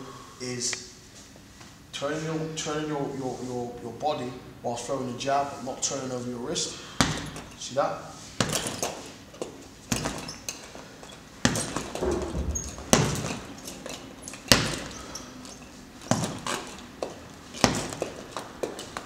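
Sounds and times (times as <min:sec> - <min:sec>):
punches thudding on heavy bag: 0:06.9 - 0:07.6, 0:08.4 - 0:09.1, 0:09.8 - 0:10.4, 0:11.4 - 0:15.2, 0:16.0 - 0:19.0.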